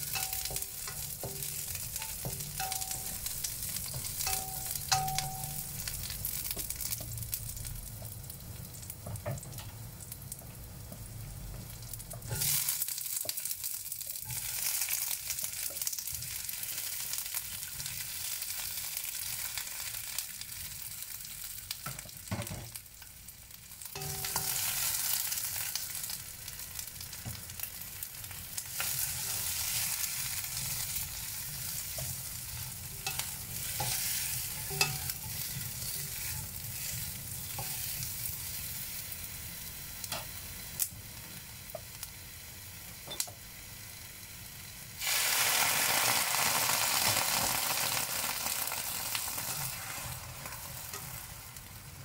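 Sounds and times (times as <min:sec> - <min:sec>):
spatula tapping and scraping pan: 0:00.0 - 0:07.1, 0:24.0 - 0:24.6, 0:31.8 - 0:38.0
peppers sizzling in a wok: 0:00.0 - 0:52.0.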